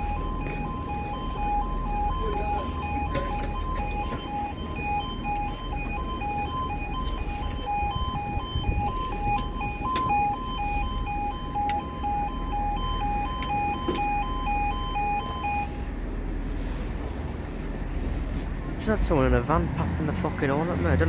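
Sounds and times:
level crossing two-tone alarm: 0:00.0 - 0:16.0.

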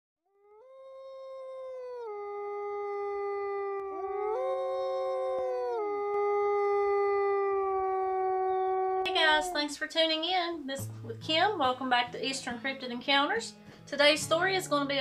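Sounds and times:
dogs howling: 0:00.4 - 0:09.9.

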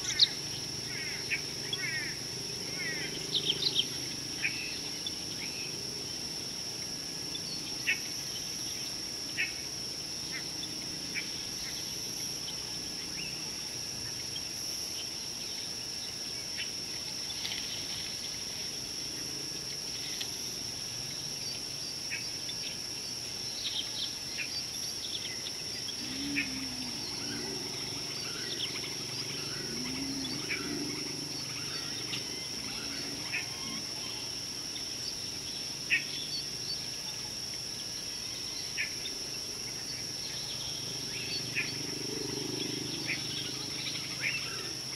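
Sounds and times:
high-pitched insect drone: 0:00.0 - 0:44.9
low animal calls: 0:25.9 - 0:34.3.

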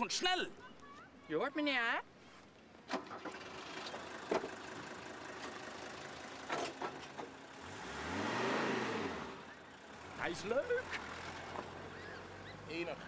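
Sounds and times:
car driving past: 0:07.1 - 0:13.0.

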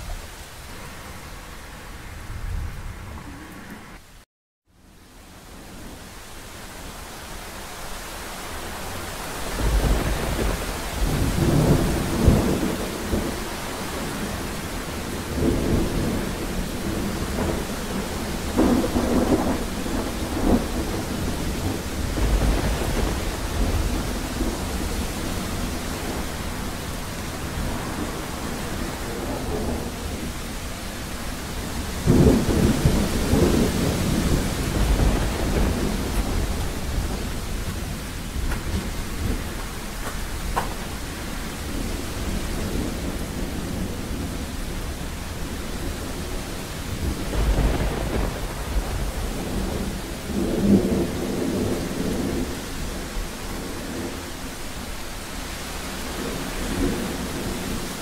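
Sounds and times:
heavy rain falling: 0:00.0 - 0:04.2, 0:05.0 - 0:58.0
thunder rolling: 0:08.8 - 0:54.4.

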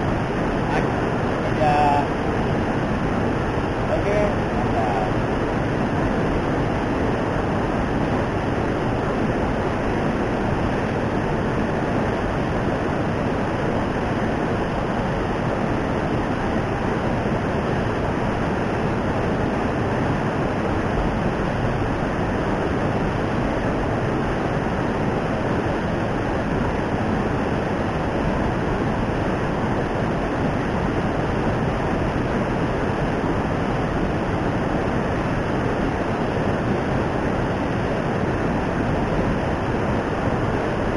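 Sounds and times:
fast-flowing water rushing: 0:00.0 - 0:40.9.

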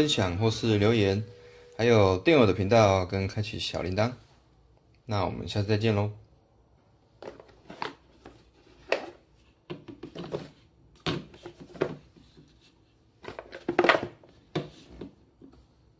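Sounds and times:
handling scrapes and rustles: 0:07.2 - 0:15.7.

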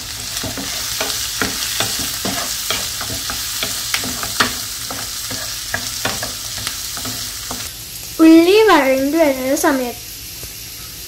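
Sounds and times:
spatula stirring in pan: 0:00.0 - 0:07.7
onions sizzling in oil: 0:00.0 - 0:11.0.

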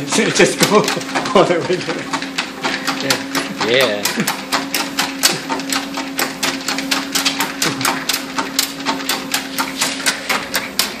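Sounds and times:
dog paws tapping on treadmill belt: 0:00.0 - 0:11.0
treadmill motor hum: 0:00.0 - 0:11.0.

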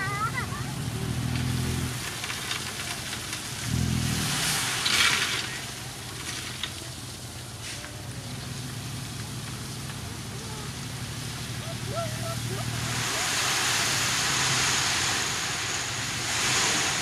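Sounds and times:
diesel truck engine running: 0:00.0 - 0:17.0
gravel sliding with rushing hiss: 0:00.0 - 0:17.0.

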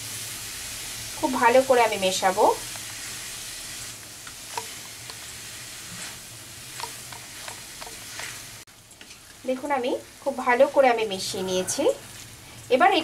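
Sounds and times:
food sizzling in oil in a wok: 0:00.0 - 0:13.0
spatula scraping and tapping pan: 0:04.2 - 0:09.4.

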